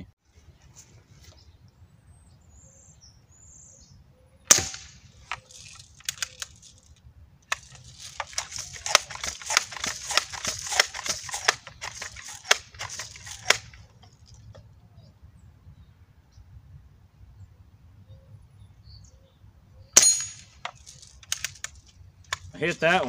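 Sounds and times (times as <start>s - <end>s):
air rifle shot: 4.5s - 5.4s
rifle clicks: 4.5s - 14.6s, 20.0s - 22.5s
air rifle pump strokes: 7.5s - 13.8s.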